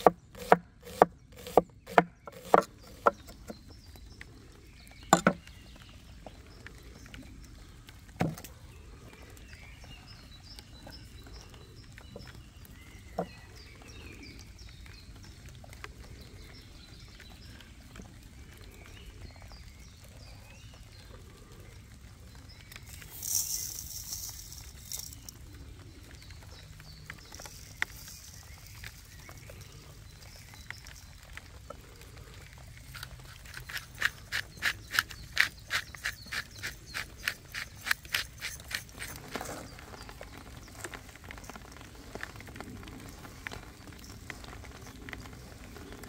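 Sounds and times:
sharp evenly spaced knocks: 0.0s - 3.5s
faint birdsong: 0.0s - 46.0s.

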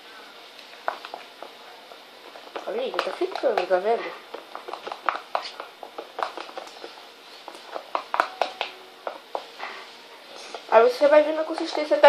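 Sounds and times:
slime squelching: 0.5s - 9.7s.

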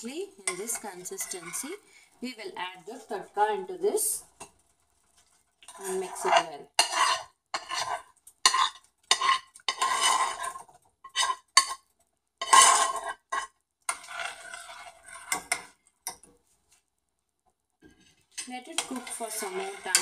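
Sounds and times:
metal spoon clinking on cookware: 0.4s - 1.8s, 5.7s - 10.5s, 11.1s - 11.8s, 17.9s - 20.0s.

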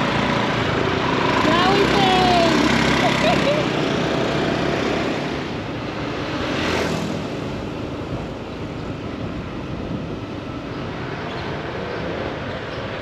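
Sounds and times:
vehicle passing: 0.0s - 8.2s
traffic hum: 0.0s - 13.0s.

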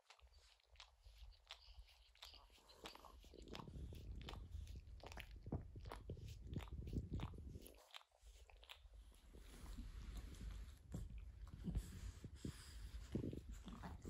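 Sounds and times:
dog licking mouth clicks and smacks: 0.0s - 9.6s.

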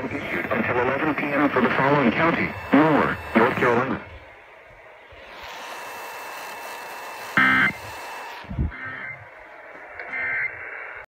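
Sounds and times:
radio static hiss: 0.0s - 11.0s
loud electronic beep: 8.7s - 9.3s, 10.0s - 10.6s.

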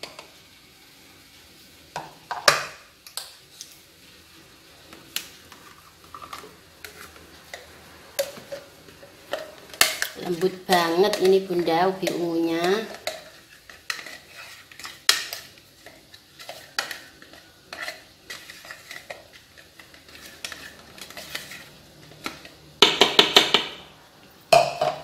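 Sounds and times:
spatula scraping a metal bowl: 5.6s - 7.6s, 9.3s - 22.5s
spatula knocking on bowl: 22.8s - 23.8s.

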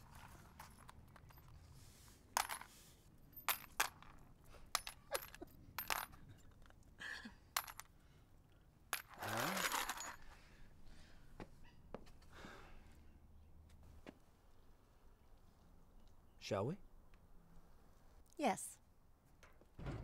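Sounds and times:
small metal objects clinking: 3.3s - 6.7s, 8.9s - 10.4s.

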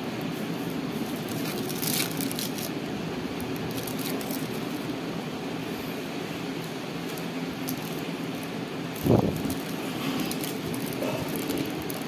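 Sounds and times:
fan-like background hum: 0.0s - 12.0s
foil crinkling: 0.6s - 2.8s, 3.4s - 4.9s, 7.0s - 12.0s.

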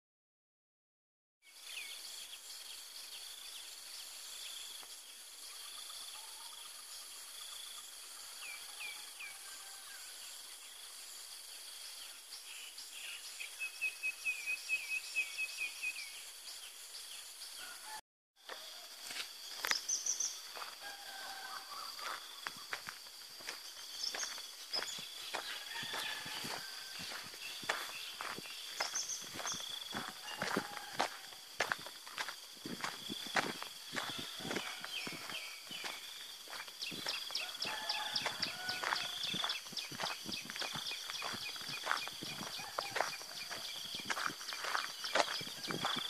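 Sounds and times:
insect chorus: 1.4s - 46.0s
footsteps crunching on dirt path: 18.4s - 46.0s.

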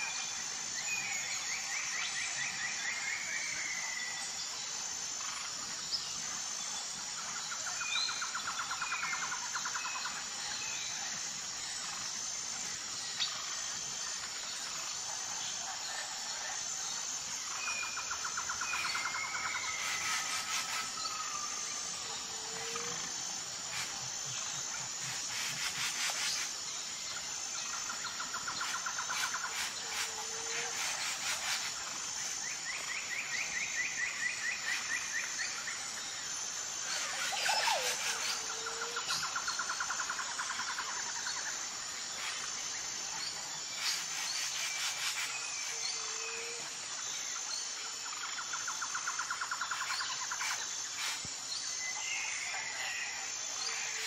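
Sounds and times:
insects pulsing: 0.0s - 54.0s.

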